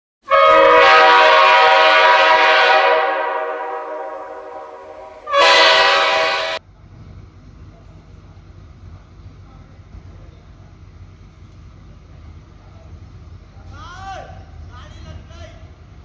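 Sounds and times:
train horn blasts: 0.2s - 6.6s.

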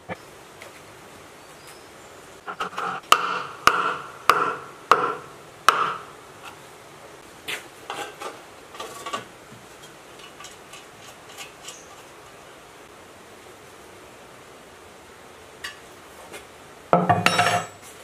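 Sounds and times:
hammer striking fan on shaft: 2.5s - 6.2s.

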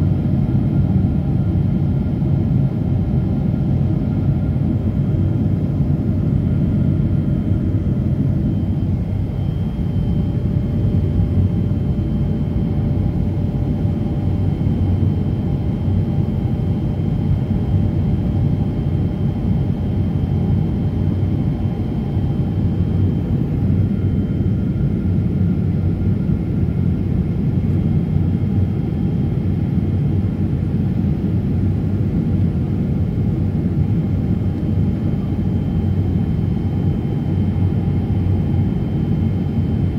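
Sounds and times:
jet engine cabin rumble: 0.0s - 39.9s
faint high whine: 6.6s - 14.2s.

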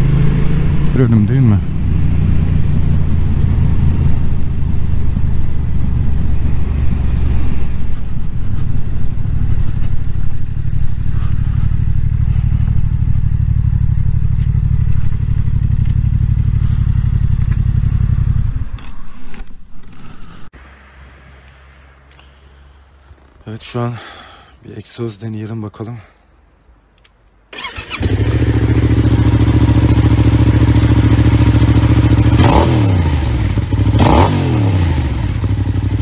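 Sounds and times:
motorcycle engine idling: 8.0s - 18.9s, 27.6s - 36.0s.

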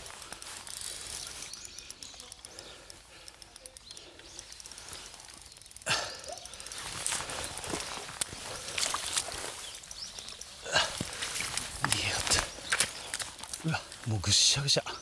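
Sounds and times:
fishing reel ticking: 0.0s - 14.5s.

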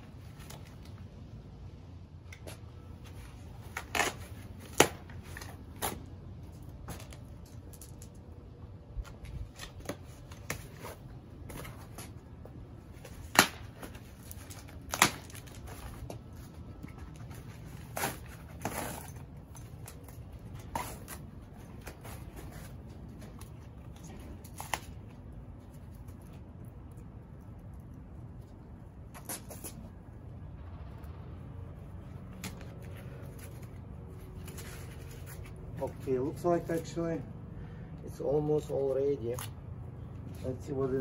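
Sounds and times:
low steady hum: 0.0s - 41.0s
packing material snapping: 13.1s - 16.2s.

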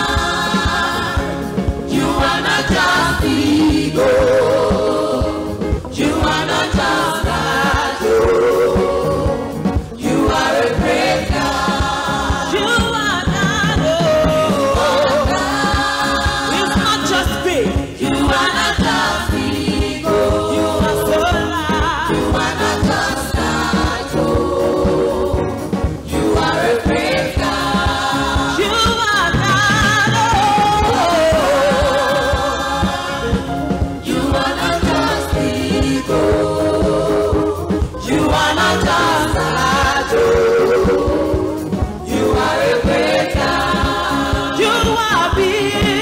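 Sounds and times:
backing singers: 0.0s - 46.0s
band with steady beat: 0.0s - 46.0s
woman singing into microphone: 12.5s - 18.8s, 20.1s - 22.9s, 28.4s - 32.8s, 44.1s - 46.0s.

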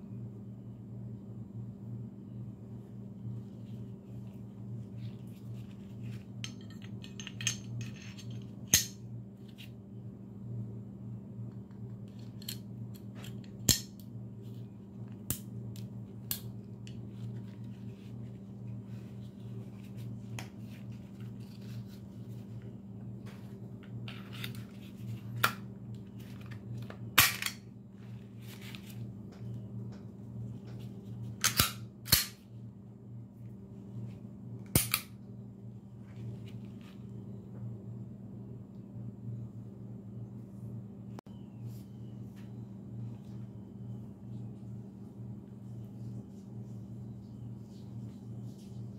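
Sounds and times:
steady low hum: 0.0s - 48.9s
metal pistol parts clicking: 6.4s - 9.0s, 12.2s - 14.0s, 31.4s - 32.4s.

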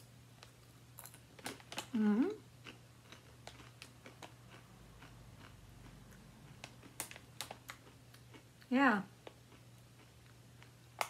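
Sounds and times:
low steady hum: 0.0s - 11.0s
potato chips crunching: 2.6s - 8.5s.

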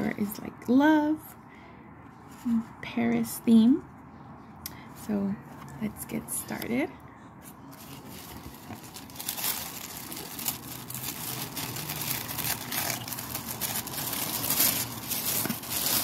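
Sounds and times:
tissue paper rustling and crinkling: 7.4s - 16.0s.

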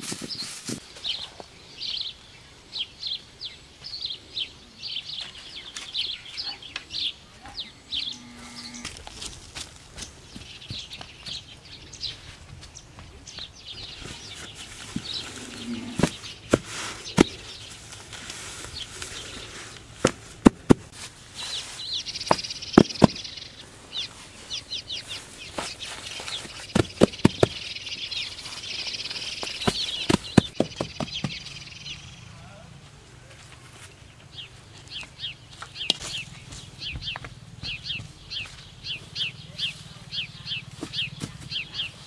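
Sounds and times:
hands patting turf: 0.0s - 1.4s, 13.9s - 23.3s, 24.0s - 31.4s
birds chirping: 0.2s - 42.0s.

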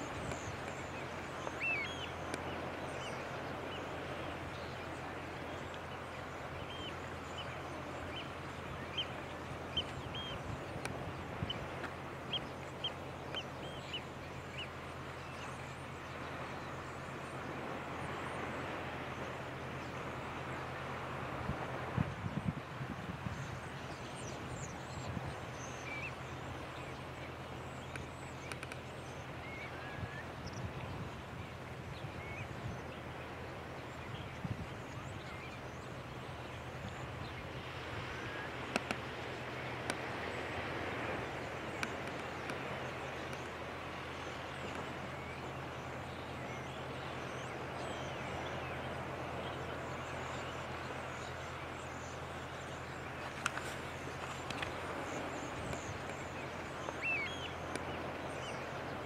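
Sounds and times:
faint ticks: 0.0s - 2.6s, 5.6s - 5.9s, 9.2s - 14.0s, 27.8s - 29.0s, 38.6s - 40.2s, 41.6s - 43.6s, 44.6s - 45.1s, 53.2s - 58.0s
waves breaking on shore: 0.0s - 59.0s
wind: 0.0s - 59.0s
small birds chirping: 38.0s - 59.0s.

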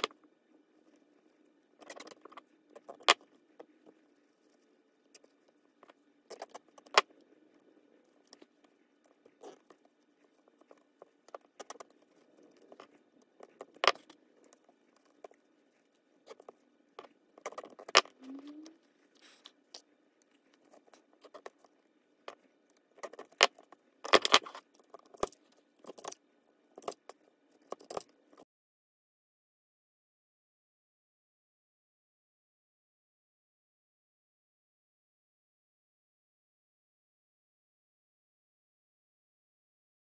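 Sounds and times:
faint steady hum: 0.0s - 28.4s.

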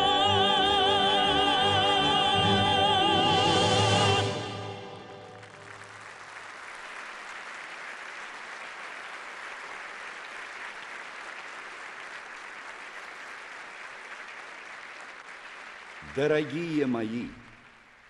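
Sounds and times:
orchestral chord: 0.0s - 5.9s
audience applauding: 4.8s - 18.0s.

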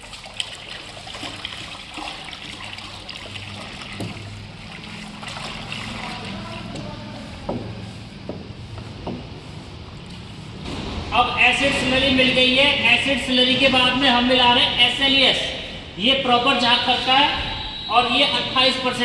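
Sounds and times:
liquid pouring and sloshing: 0.0s - 6.9s, 9.1s - 11.1s.

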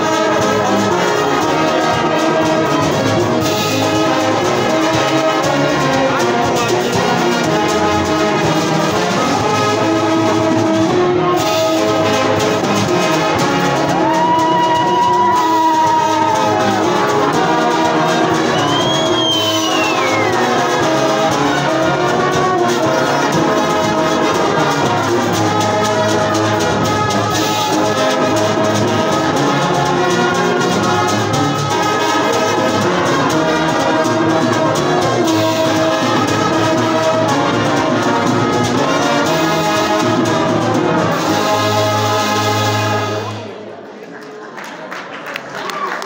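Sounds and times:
brass band playing: 0.0s - 43.8s.

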